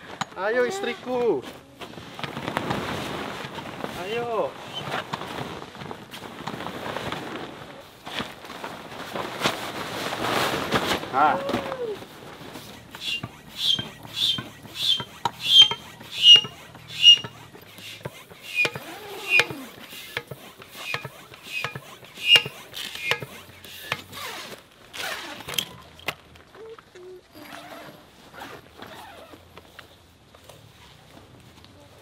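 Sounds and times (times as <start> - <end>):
hand pump strokes squeaking: 12.5 - 26.0.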